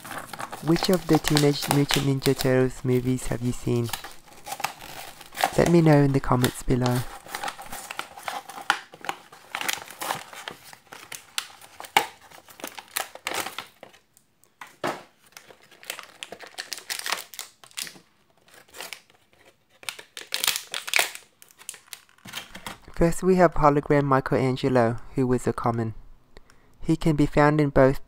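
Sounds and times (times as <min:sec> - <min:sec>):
plastic packaging crinkling: 0:00.0 - 0:23.0.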